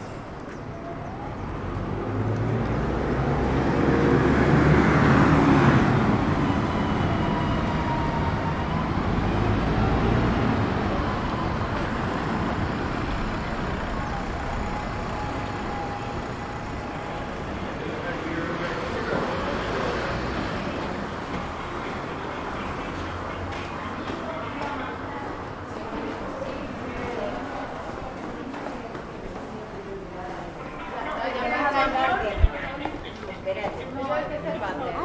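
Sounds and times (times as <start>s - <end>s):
motor vehicle driving past: 1.2s - 22.0s.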